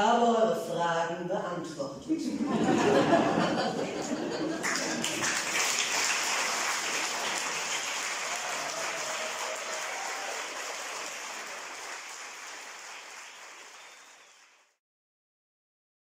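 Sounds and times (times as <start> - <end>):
audience applauding: 3.6 - 14.8.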